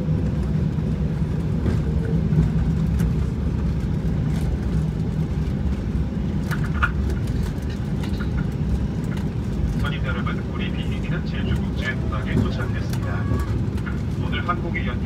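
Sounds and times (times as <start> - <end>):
wheels rumbling on runway: 0.0 - 15.0.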